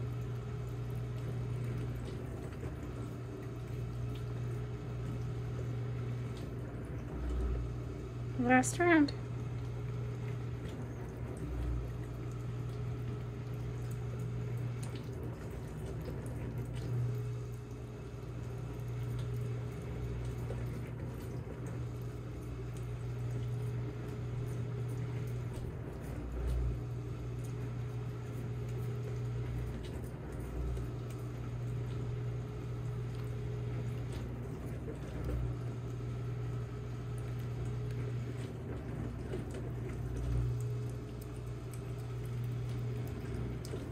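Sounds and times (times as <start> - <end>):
steady low hum: 0.0 - 43.9
cats licking: 27.3 - 43.9.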